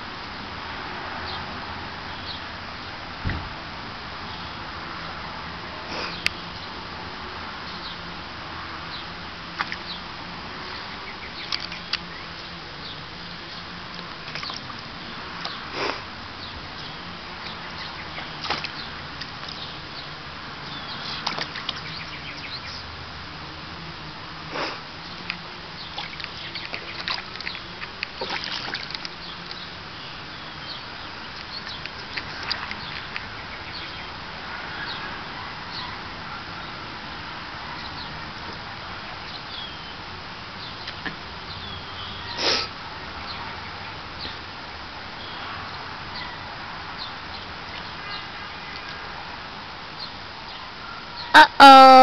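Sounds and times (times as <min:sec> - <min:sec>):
water splashing: 0:09.4 - 0:34.7.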